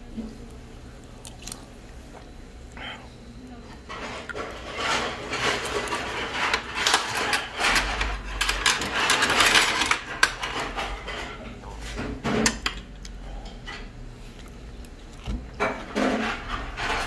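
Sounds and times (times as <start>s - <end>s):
tableware clicking and clinking: 3.9s - 11.6s.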